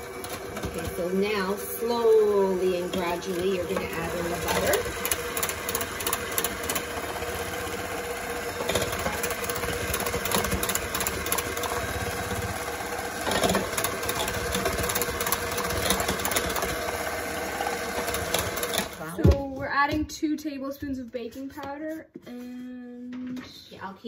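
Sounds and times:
electric hand mixer running: 0.0s - 19.2s.

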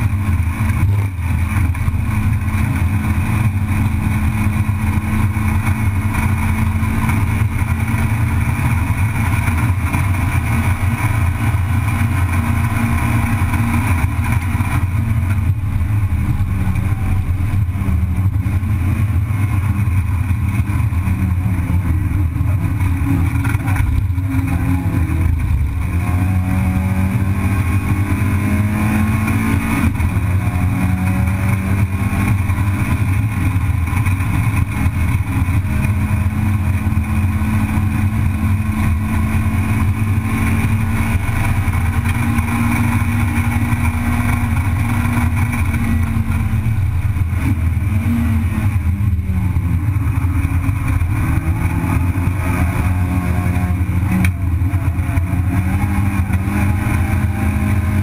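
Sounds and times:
race car engine at high revs: 0.0s - 58.0s.

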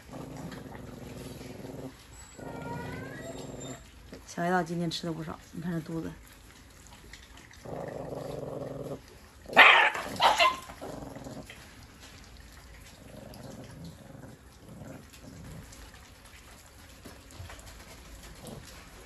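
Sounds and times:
puppies growling: 0.0s - 4.3s, 5.8s - 19.0s
puppy barking sharply: 9.6s - 10.7s.

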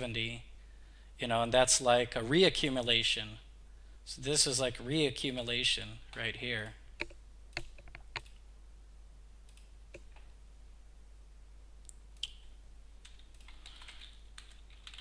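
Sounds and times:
low electrical hum: 0.0s - 15.0s
computer mouse clicks: 7.0s - 8.4s.

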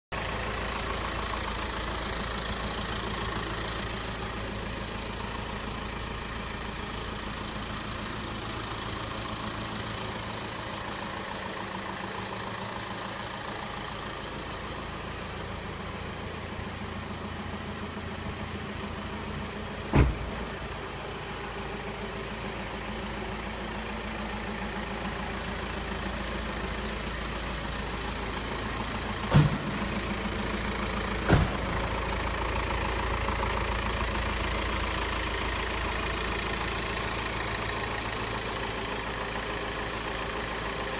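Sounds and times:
van engine idling: 0.1s - 40.9s
single thump: 19.9s - 20.3s.

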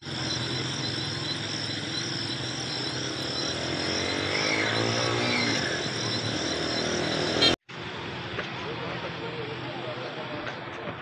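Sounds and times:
motor rising and falling in pitch: 0.0s - 7.6s
high steady whine: 0.0s - 11.0s
low engine-like hum: 0.0s - 11.0s.

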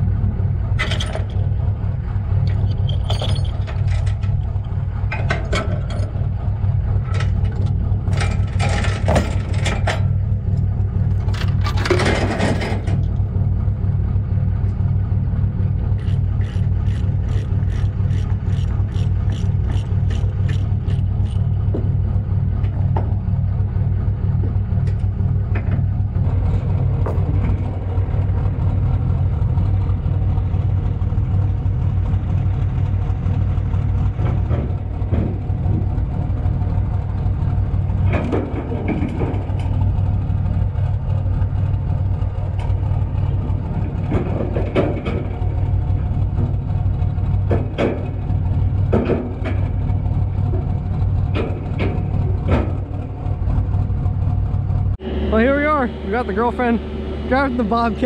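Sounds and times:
diesel engine running: 0.0s - 58.0s
metal clanks and scrapes: 0.8s - 1.5s, 2.5s - 6.3s, 7.0s - 10.2s, 11.2s - 13.2s, 38.0s - 39.9s, 42.6s - 46.6s, 47.3s - 53.8s.

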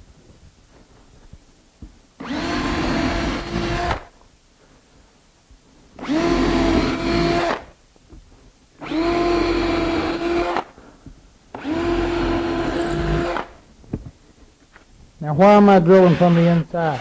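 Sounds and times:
cordless drill boring into wood: 2.2s - 4.1s, 6.0s - 7.7s, 8.8s - 10.7s, 11.5s - 13.6s, 15.9s - 17.0s.

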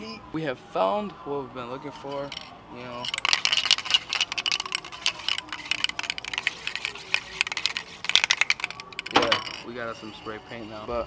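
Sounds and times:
spray can rattling: 2.1s - 9.7s.

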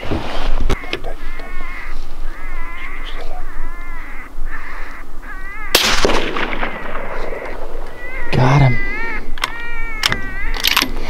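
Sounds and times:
electronic animal distress cries: 0.8s - 5.8s, 7.8s - 10.7s
rifle shot: 5.7s - 7.8s.

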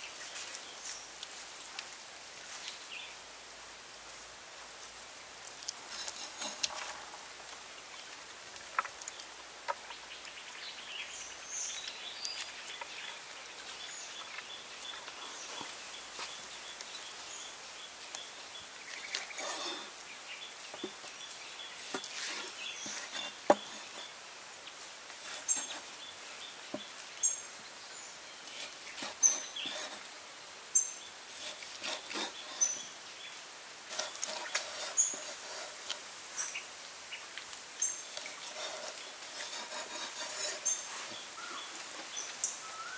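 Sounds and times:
outdoor hiss: 0.0s - 42.9s
bird chirps: 40.6s - 42.9s.

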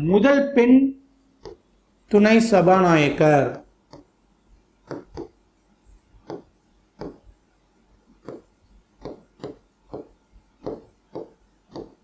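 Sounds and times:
pen scratching on screen: 4.8s - 5.4s, 6.2s - 7.3s, 8.2s - 12.0s.

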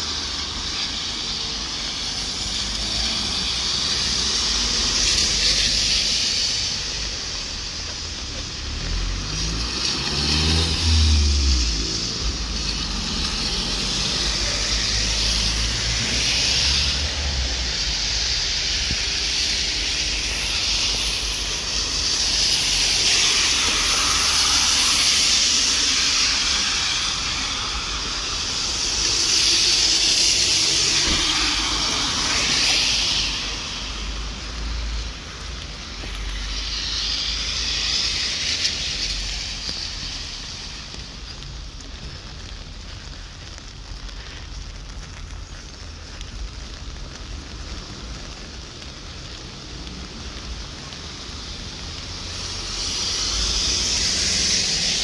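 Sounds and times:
tyres hissing on wet road: 0.0s - 55.0s
low engine passing: 1.2s - 42.6s.

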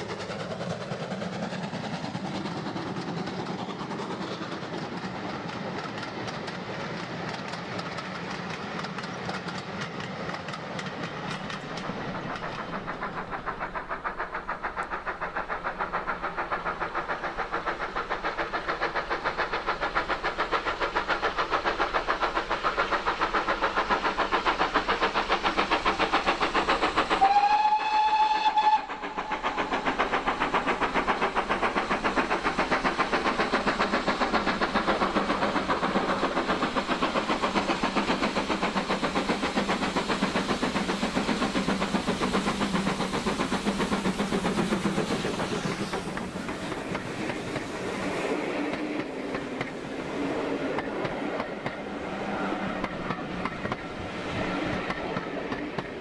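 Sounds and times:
carriages running on rails: 0.0s - 56.0s
steam locomotive chuffing: 0.0s - 56.0s
steam whistle blast: 27.2s - 29.1s.

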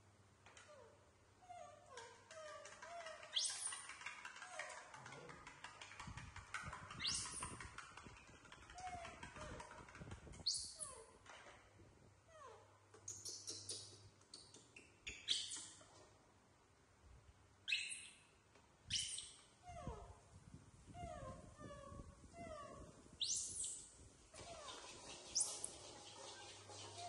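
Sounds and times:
high monkey squeals: 2.3s - 4.9s, 6.8s - 7.8s
baby monkeys squeaking and cooing: 6.9s - 7.8s, 18.9s - 20.1s, 21.0s - 23.8s.

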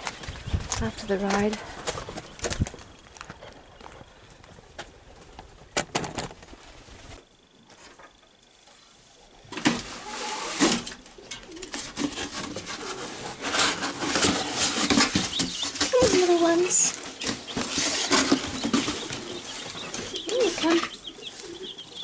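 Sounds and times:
rustling and clattering of straw and boards: 0.0s - 22.0s
bird calls: 12.6s - 22.0s.

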